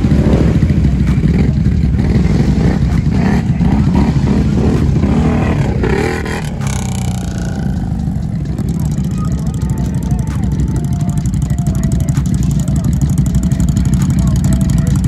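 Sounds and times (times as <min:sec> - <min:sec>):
atv engine revving: 0:00.0 - 0:15.0.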